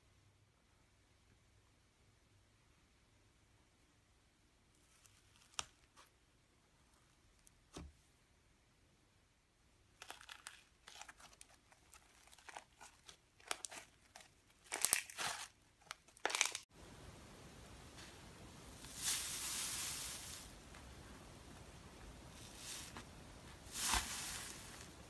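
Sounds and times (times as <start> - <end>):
slime crackling and crunching: 10.0 - 16.7.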